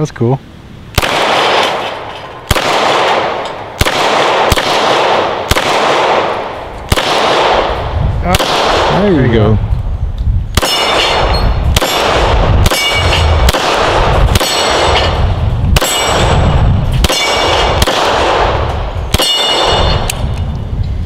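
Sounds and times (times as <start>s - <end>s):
pistol shots: 0.9s - 9.2s, 10.6s - 20.3s
metallic ring of steel targets: 10.6s - 12.0s, 12.6s - 13.4s, 14.3s - 17.8s, 19.1s - 20.4s.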